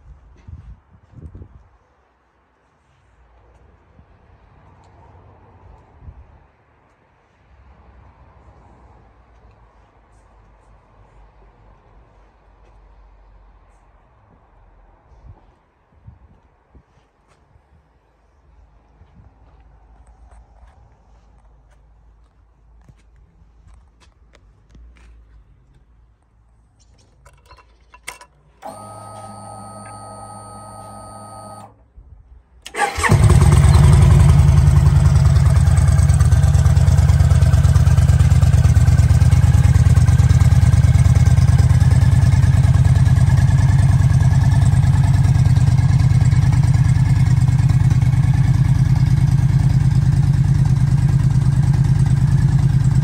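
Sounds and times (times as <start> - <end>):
click: 27.3 - 31.7
motorcycle starter cranking: 27.3 - 31.8, 32.7 - 35.2
motorcycle engine idling: 32.8 - 53.0.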